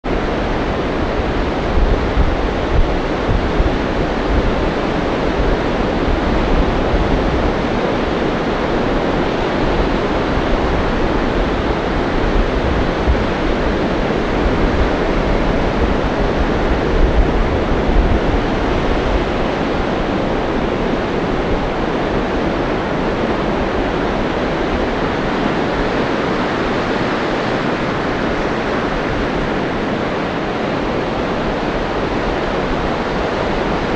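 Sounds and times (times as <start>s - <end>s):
ocean surf breaking on beach: 0.0s - 33.9s
wind rumble on microphone: 0.0s - 33.9s.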